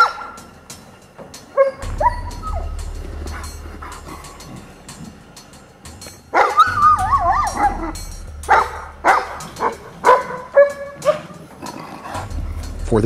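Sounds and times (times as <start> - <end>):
dog yelping: 0.0 - 0.4, 1.5 - 2.7, 6.3 - 11.8
dog whining: 1.6 - 4.7, 6.3 - 12.2.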